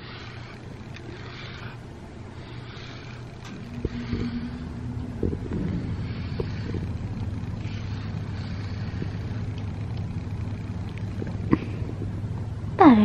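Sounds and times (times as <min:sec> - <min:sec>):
cat purring: 0:02.7 - 0:12.4.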